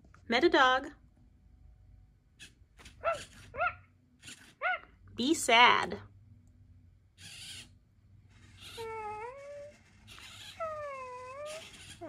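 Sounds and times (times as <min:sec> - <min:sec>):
robot dog whining: 0:02.4 - 0:04.9, 0:07.2 - 0:07.7, 0:08.4 - 0:12.0.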